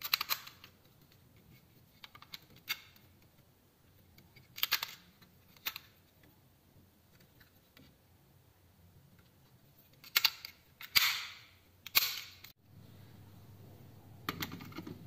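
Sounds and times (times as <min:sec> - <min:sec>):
plastic clicks and rattles: 0:00.0 - 0:01.2, 0:04.1 - 0:06.0, 0:09.9 - 0:11.2.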